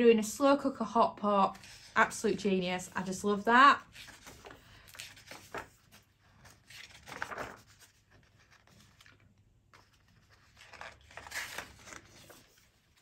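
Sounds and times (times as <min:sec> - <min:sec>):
book pages being turned: 0:01.5 - 0:02.2, 0:03.8 - 0:13.0.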